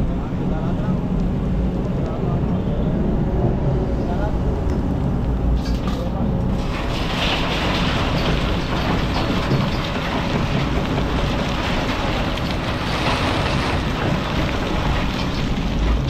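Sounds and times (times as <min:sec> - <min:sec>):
excavator diesel engine running: 0:04.3 - 0:16.0
rocks pouring into steel truck bed: 0:06.6 - 0:16.0.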